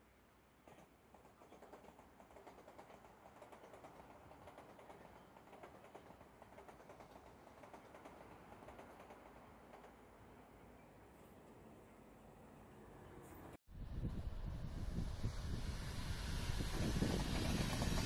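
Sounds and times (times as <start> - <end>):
train wheels clattering over rails: 0.6 - 10.2, 16.5 - 18.0.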